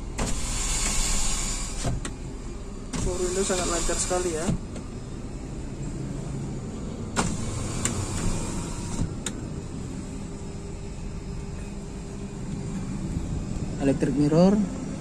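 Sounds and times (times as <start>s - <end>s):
electric power window running: 0.0s - 2.3s, 2.9s - 5.0s, 6.9s - 9.5s
steady low car hum: 0.0s - 15.0s.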